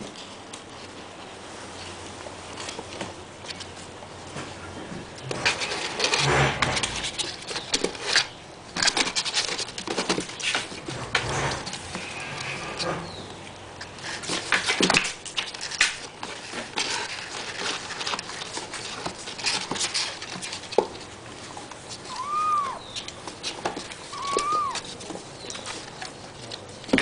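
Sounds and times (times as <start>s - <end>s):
kittens scratching on cardboard: 0.0s - 27.0s
kitten mews: 22.0s - 23.0s, 24.1s - 24.9s.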